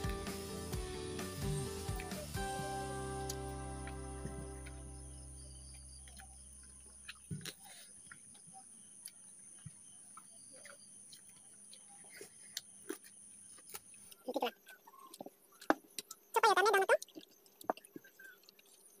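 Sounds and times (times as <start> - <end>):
background music: 0.0 - 5.6
faint chewing: 5.7 - 19.0.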